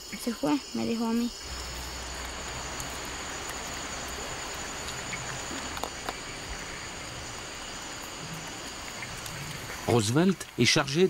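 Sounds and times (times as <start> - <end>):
background hiss: 0.0 - 11.0
insects trilling: 0.0 - 11.0.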